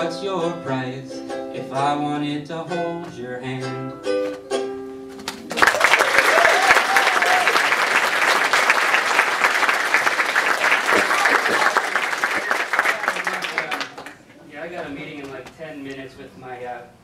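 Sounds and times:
ukulele chord ringing: 0:00.0 - 0:05.1
audience applause: 0:05.4 - 0:14.2.

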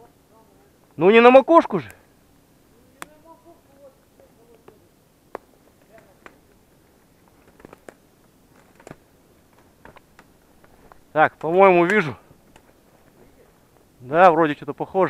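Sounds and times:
faint clicks and snaps: 0:03.0 - 0:03.2.

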